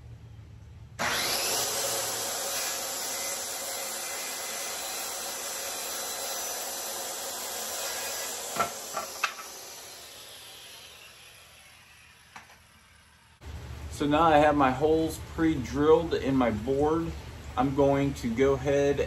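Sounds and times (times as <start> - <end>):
circular saw cutting wood: 1.0 - 13.4.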